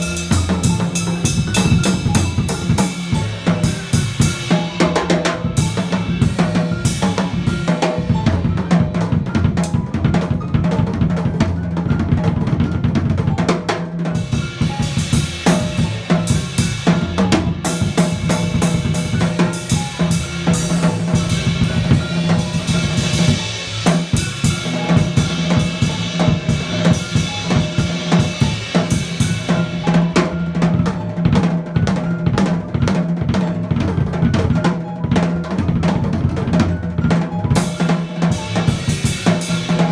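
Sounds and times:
drum kit playing: 0.0 - 39.9
piano: 0.0 - 39.9
upright bass: 0.0 - 39.9.

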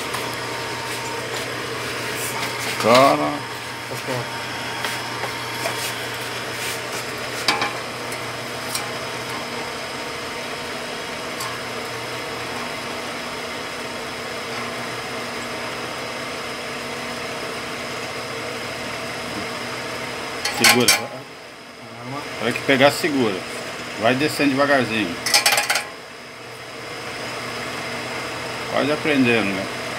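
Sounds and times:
drill press motor humming: 0.0 - 20.6.

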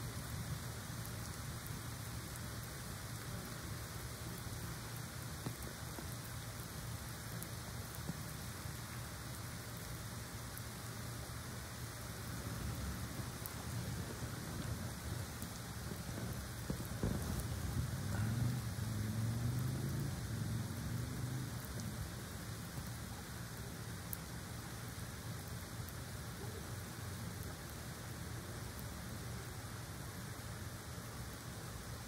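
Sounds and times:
steady rain: 0.0 - 32.0
faint drips: 11.7 - 27.5.

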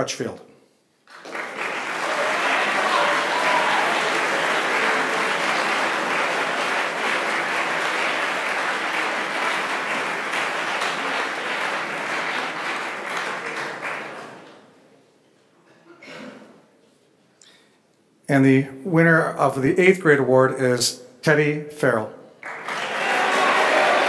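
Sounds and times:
audience applauding: 1.1 - 14.7, 22.4 - 24.0.

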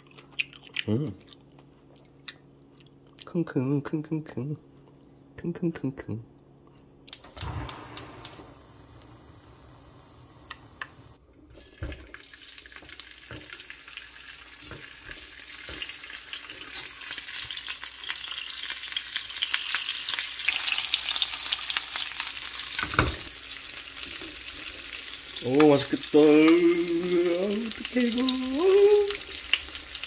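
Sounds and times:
oil sizzling in a pan: 7.3 - 30.0.

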